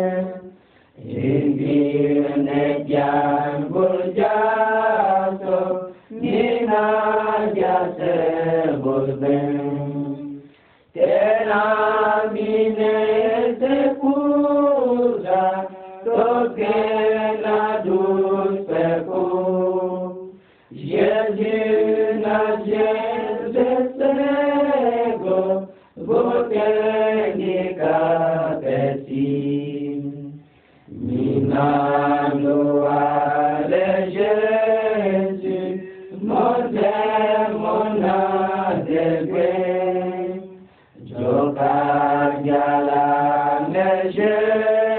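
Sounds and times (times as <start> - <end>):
voices chanting a religious song: 0.0 - 44.9.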